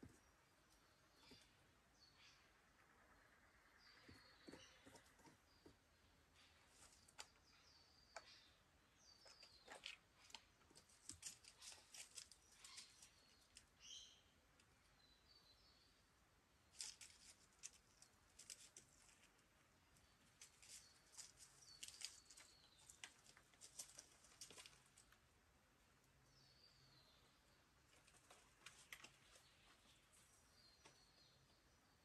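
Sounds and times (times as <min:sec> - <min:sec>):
bird chirps: 0:00.0 - 0:10.3, 0:11.5 - 0:16.0.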